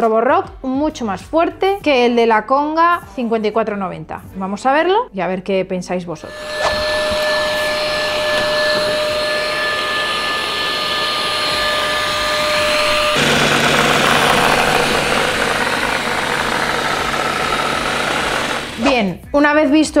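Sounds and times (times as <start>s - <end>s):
robot vacuum cleaner whirring: 6.2s - 19.0s
thin high whines: 6.2s - 19.0s.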